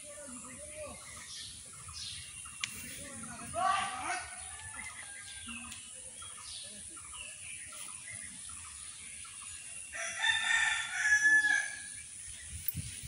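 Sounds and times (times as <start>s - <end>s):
rooster crowing: 10.0s - 11.9s.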